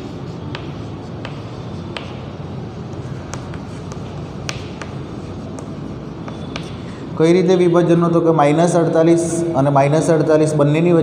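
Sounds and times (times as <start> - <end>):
chalk scratching on chalkboard: 0.0 - 7.0.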